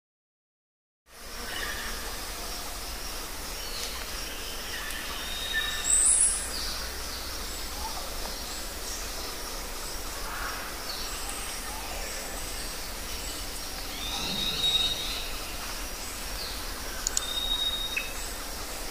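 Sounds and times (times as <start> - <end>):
background hiss: 1.1 - 18.9
faint high bird chirps: 13.2 - 15.6, 16.4 - 18.3.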